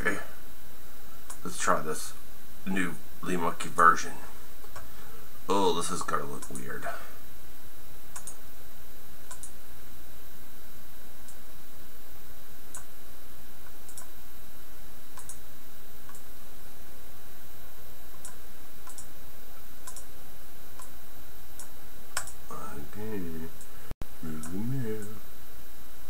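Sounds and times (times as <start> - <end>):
steady low hum: 0.0 - 26.0
computer mouse clicking: 6.4 - 6.6, 8.1 - 8.4, 9.3 - 9.6, 13.6 - 14.1, 15.2 - 15.4, 18.1 - 19.1, 19.8 - 20.1, 21.6 - 22.4.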